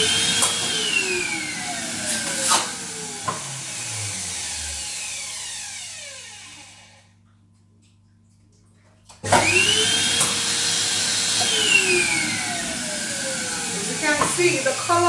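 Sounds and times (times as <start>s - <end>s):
balloon inflator motor whine: 0.0s - 7.2s, 9.2s - 15.0s.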